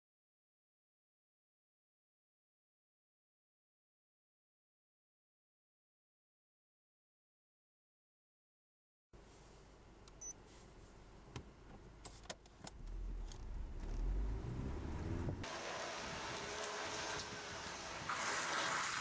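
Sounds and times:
car rumble inside cabin: 12.7s - 15.5s
tyres hissing on wet concrete: 15.5s - 19.0s.

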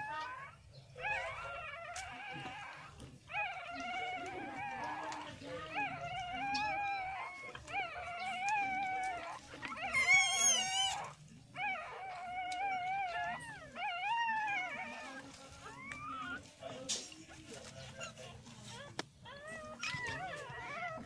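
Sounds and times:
puppies crying: 0.0s - 21.0s.

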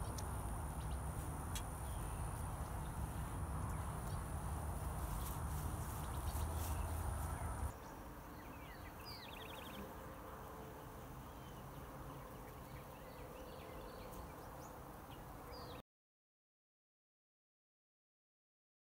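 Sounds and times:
birds chirping: 0.0s - 9.9s
honeybees buzzing: 0.0s - 15.3s.

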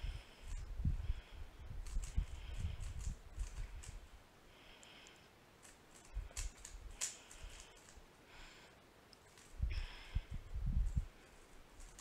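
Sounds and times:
plastic cube clicking and rasping: 1.8s - 4.0s, 5.6s - 8.0s, 9.1s - 9.6s, 10.9s - 12.0s
hands bumping cube: 5.6s - 8.0s.

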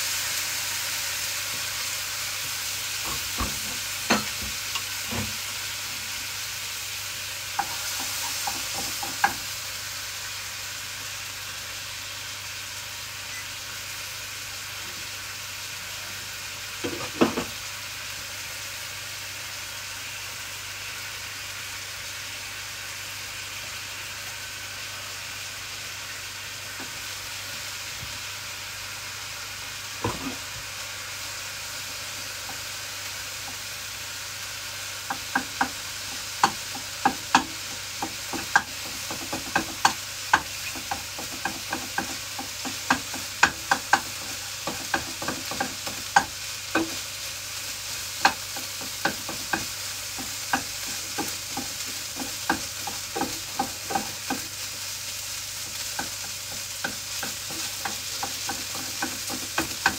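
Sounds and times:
rice sizzling in a frying pan: 0.0s - 59.9s
wooden spatula clacking on pan: 35.1s - 47.0s, 48.2s - 54.6s, 55.6s - 59.9s.

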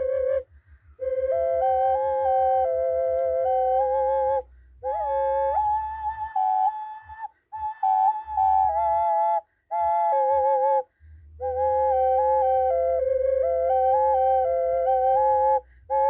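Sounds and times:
double ocarina playing: 0.0s - 16.0s.

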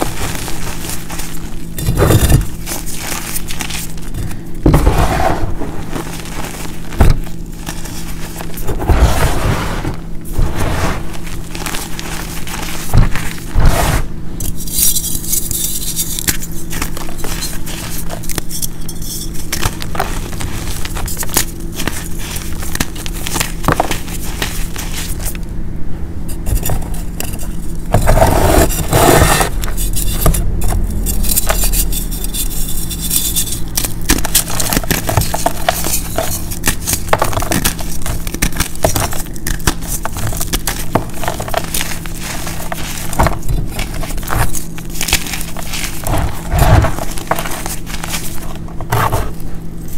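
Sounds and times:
chalk blocks crumbling by hand: 0.0s - 5.0s, 14.4s - 25.4s, 31.2s - 49.5s.

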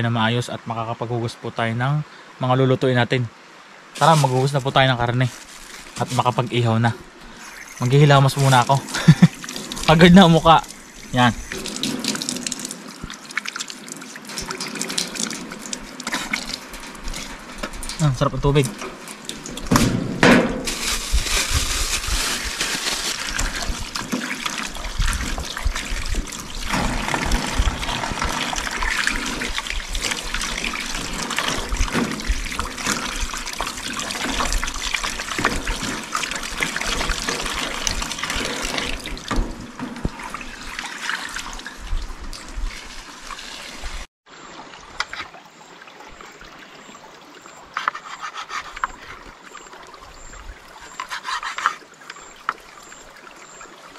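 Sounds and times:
faint hiss: 0.0s - 13.1s
running water splashing: 3.9s - 53.9s.

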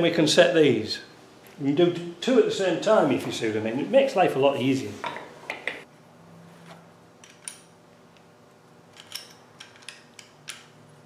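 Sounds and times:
metallic clicks of hand tools: 8.9s - 10.7s.

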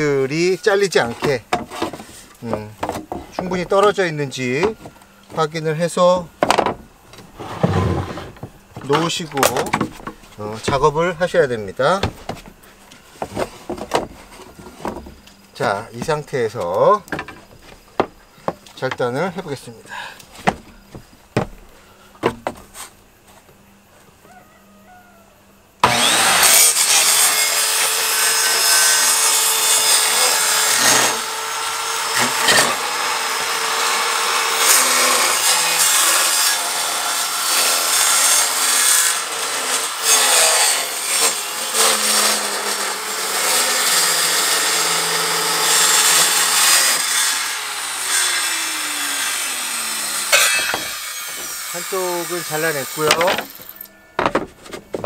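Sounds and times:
circular saw cutting plywood: 0.0s - 6.3s, 7.2s - 12.3s, 25.8s - 55.0s
sharp knocks: 20.4s - 21.6s, 50.3s - 51.6s.

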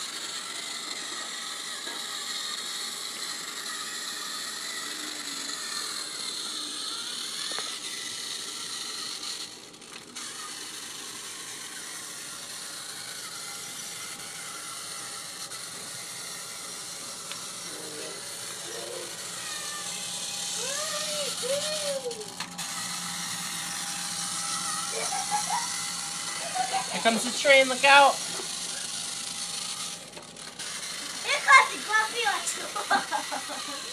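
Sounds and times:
toy train motor whirring: 0.0s - 33.9s.

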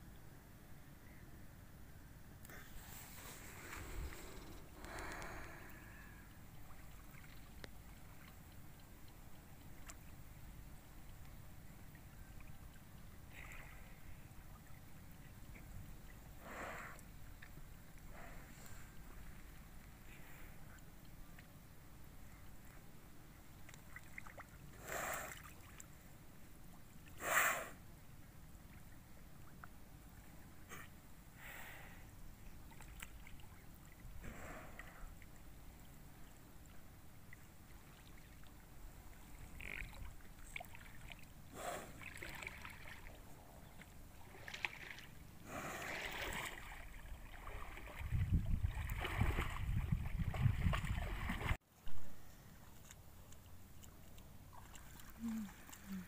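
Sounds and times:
water splashing: 36.6s - 43.2s, 44.1s - 51.6s.

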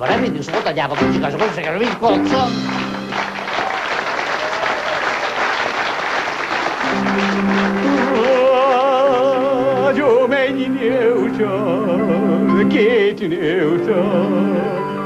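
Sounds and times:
audience applause: 0.0s - 9.6s
stage band music: 0.0s - 15.0s
high melody with wide vibrato: 2.1s - 3.6s.

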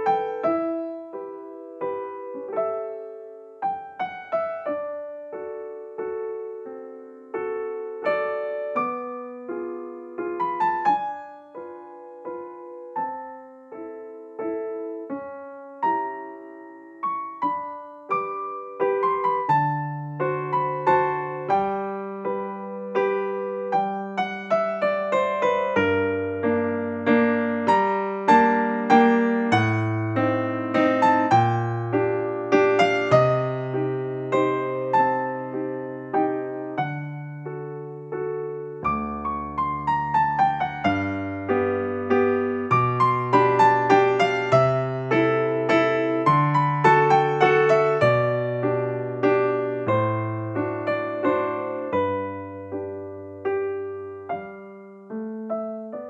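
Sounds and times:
slow piano piece: 0.0s - 56.0s.

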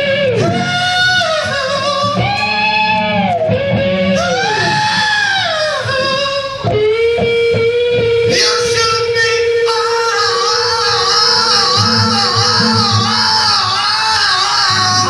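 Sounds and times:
electric guitar and band: 0.0s - 15.0s
long held note: 10.4s - 13.8s.

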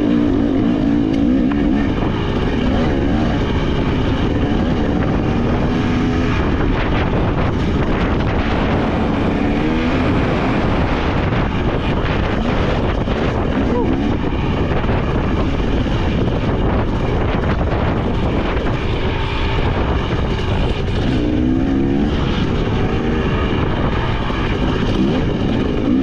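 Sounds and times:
dirt bike engine revving: 0.0s - 26.0s
wind noise on microphone: 0.0s - 26.0s.

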